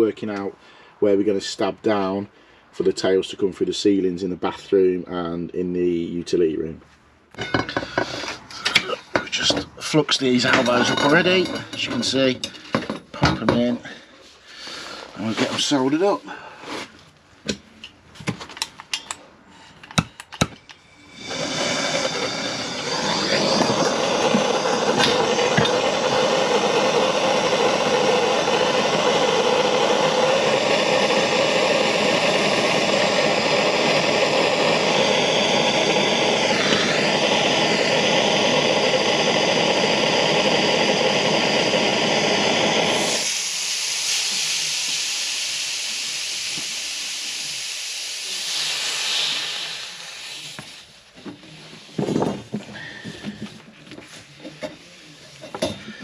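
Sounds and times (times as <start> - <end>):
gas blowtorch burning: 7.4 - 13.9, 19.9 - 56.0
blowtorch ignition clicks: 19.9 - 47.4.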